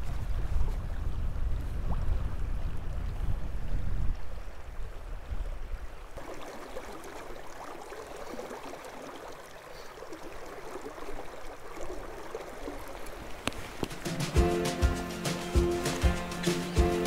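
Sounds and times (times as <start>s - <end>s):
river water flowing: 4.1s - 17.0s.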